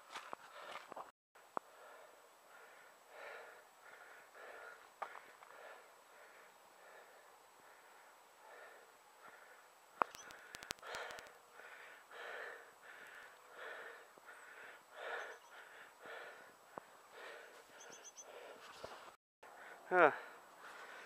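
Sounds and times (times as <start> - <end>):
runner breathing hard: 0.2 - 21.0
sharp clicks: 10.0 - 11.4.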